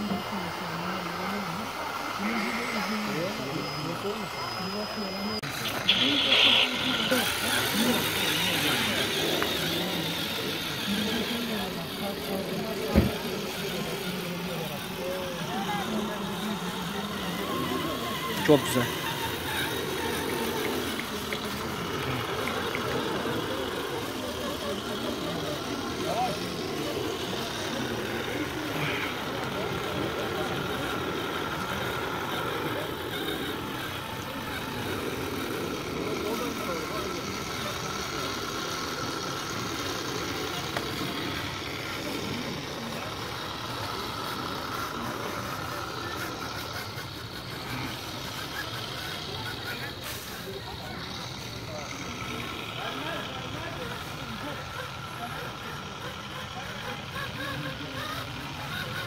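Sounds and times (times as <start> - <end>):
toy truck engine drone: 0.0 - 59.0.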